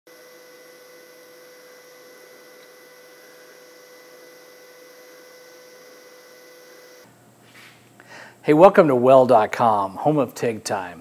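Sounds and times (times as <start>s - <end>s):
welding arc hissing: 0.1s - 7.1s
steady hum: 0.1s - 11.0s.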